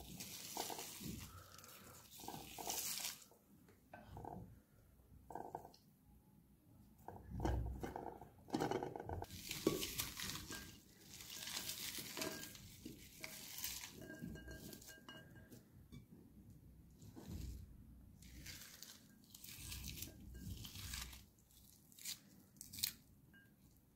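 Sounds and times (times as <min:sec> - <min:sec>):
onion pieces rustling: 0:00.0 - 0:03.4, 0:09.2 - 0:14.9, 0:18.2 - 0:23.1.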